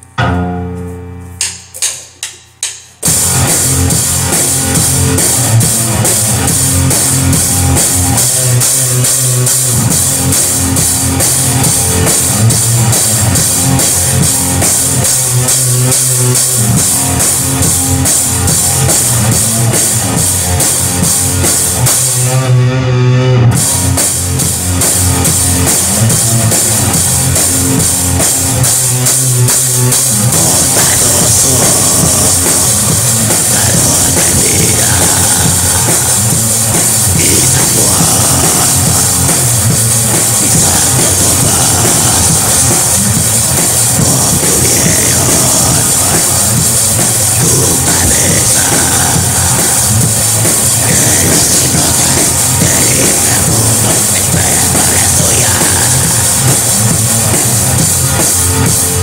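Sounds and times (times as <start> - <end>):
black metal band playing: 0.0 - 59.0.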